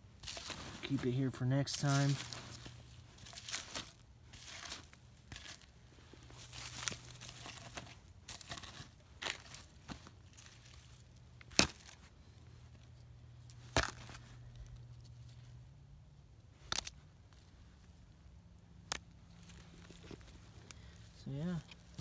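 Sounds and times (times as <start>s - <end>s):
rustling in dry leaves: 0.0s - 12.2s
sharp twig cracks: 16.6s - 17.0s.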